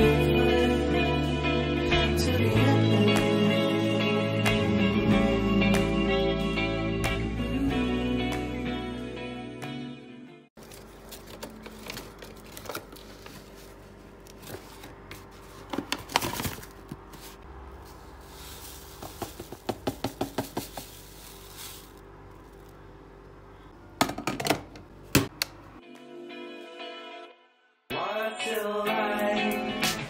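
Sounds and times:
ground coffee pouring: 0:17.8 - 0:22.7.

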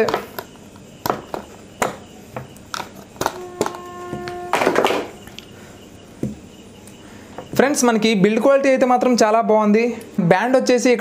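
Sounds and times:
steady pitched tone: 0:03.4 - 0:06.8.

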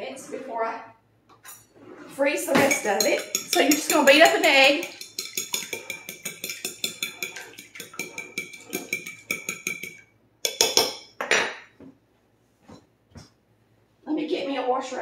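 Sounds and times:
fork clinking against glass: 0:02.6 - 0:11.1.

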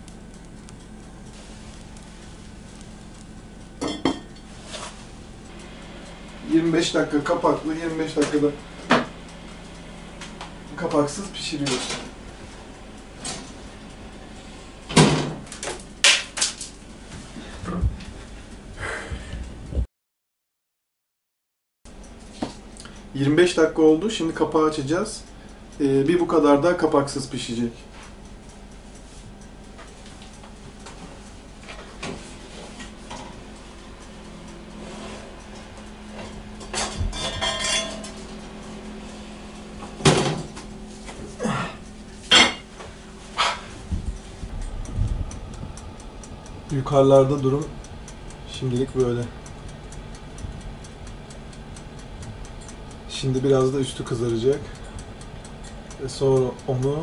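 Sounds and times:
low steady hum: 0:00.0 - 0:19.8, 0:21.9 - 0:57.0
pot and oven clunks: 0:03.8 - 0:05.0, 0:08.1 - 0:09.2, 0:14.9 - 0:16.6, 0:35.1 - 0:38.4, 0:39.7 - 0:41.3, 0:42.2 - 0:43.7
oven door shutting: 0:10.2 - 0:12.2, 0:14.8 - 0:16.6, 0:39.2 - 0:41.3
ringing metallic scrape: 0:37.1 - 0:38.2.

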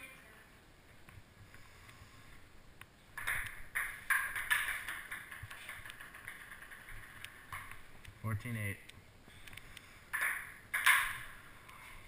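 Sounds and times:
ping pong ball hits: 0:03.2 - 0:07.7, 0:10.2 - 0:11.4.

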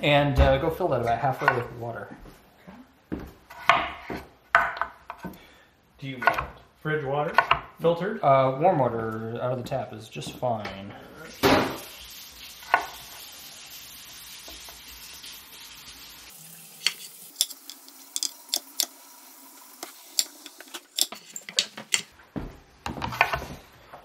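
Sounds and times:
kitchen tap running: 0:11.3 - 0:22.1.

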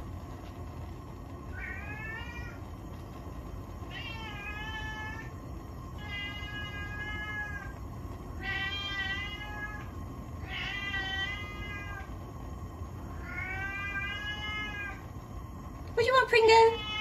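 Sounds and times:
cat meowing: 0:01.5 - 0:02.6, 0:03.9 - 0:05.3, 0:06.0 - 0:07.7, 0:08.4 - 0:12.1, 0:13.1 - 0:15.0, 0:16.7 - 0:17.0.

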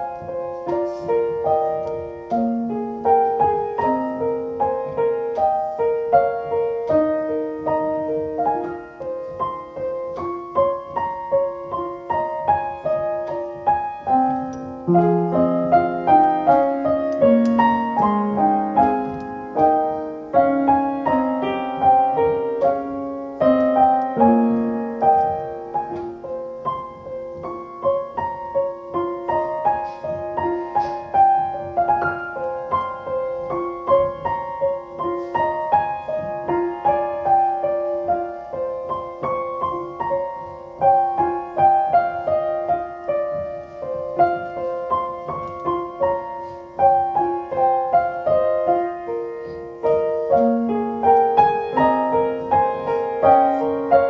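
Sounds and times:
solo piano music: 0:00.0 - 0:54.0.

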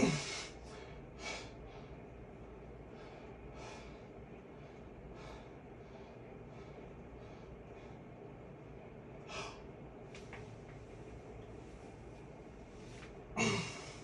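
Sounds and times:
man grunting: 0:00.0 - 0:00.4, 0:13.4 - 0:14.0
man breathing: 0:00.0 - 0:08.4, 0:09.2 - 0:09.8, 0:12.8 - 0:14.0.

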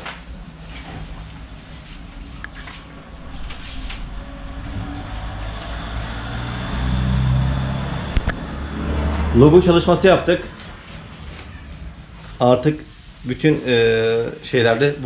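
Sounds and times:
vehicle engine humming: 0:00.2 - 0:13.2.

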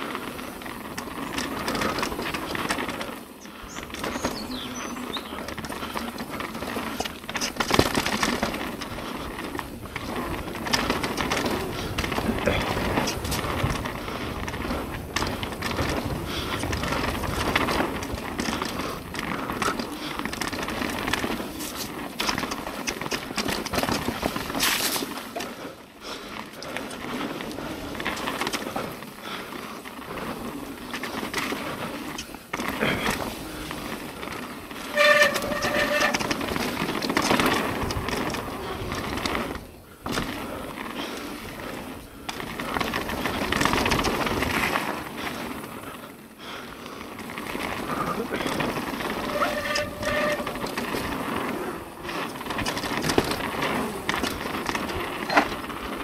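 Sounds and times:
bike rattling over bumps: 0:00.0 - 0:56.0
tyres on dirt: 0:00.0 - 0:56.0
high brake squeal: 0:49.2 - 0:50.6.

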